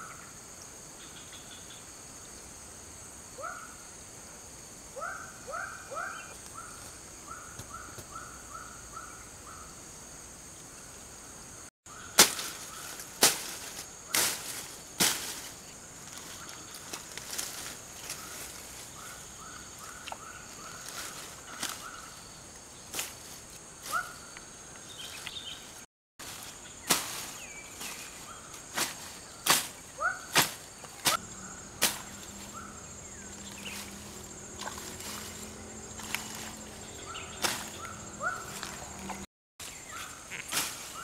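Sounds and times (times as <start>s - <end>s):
sickle swishing through grass: 12.1s - 22.2s, 22.9s - 24.2s, 25.0s - 41.0s.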